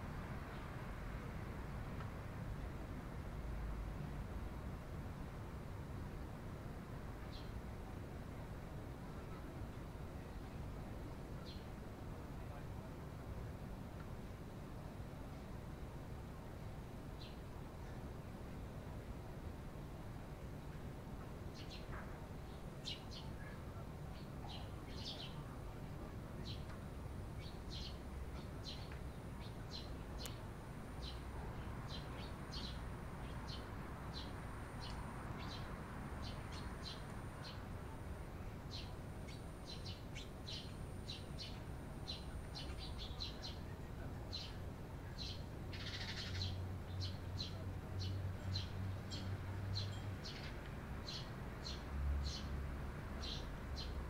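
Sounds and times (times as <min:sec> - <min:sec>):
sparrows chirping: 0:22.5 - 0:25.6, 0:26.4 - 0:30.4, 0:31.0 - 0:37.7, 0:38.6 - 0:52.6, 0:53.2 - 0:54.0.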